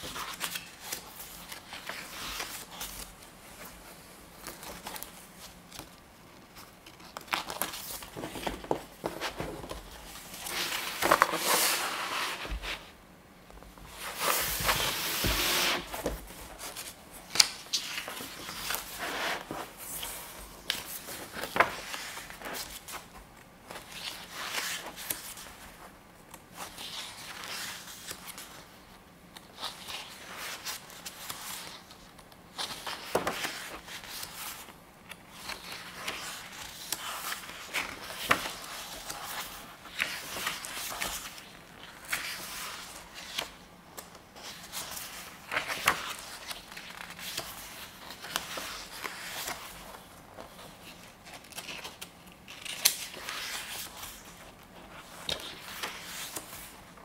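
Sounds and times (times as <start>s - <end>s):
pages turned by hand: 0.0s - 12.9s, 13.9s - 25.9s, 29.6s - 57.0s
paper sheet folded shut: 14.0s - 22.8s.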